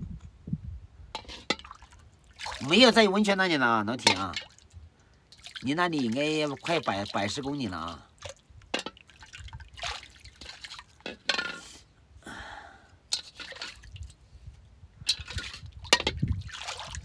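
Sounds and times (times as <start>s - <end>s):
wind rumble on microphone: 0.0s - 1.2s, 13.8s - 17.0s
drip-like splashes: 1.2s - 3.0s, 3.9s - 11.1s, 15.2s - 17.0s.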